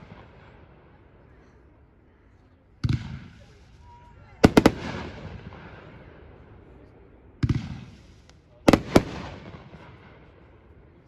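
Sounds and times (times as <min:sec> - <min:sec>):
firework reports: 0:02.8 - 0:11.0.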